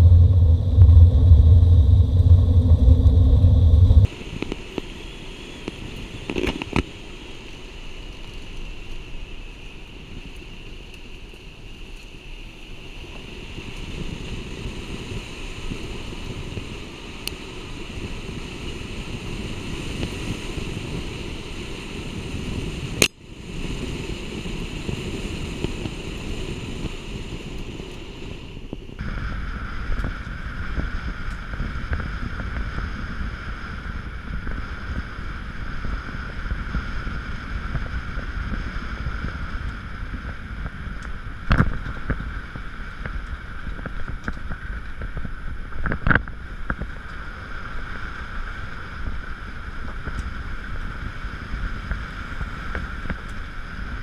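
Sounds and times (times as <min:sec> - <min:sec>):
tyre and drivetrain rumble: 0:00.0 - 0:04.1
wind rushing over microphone: 0:00.0 - 0:04.5, 0:13.1 - 0:54.0.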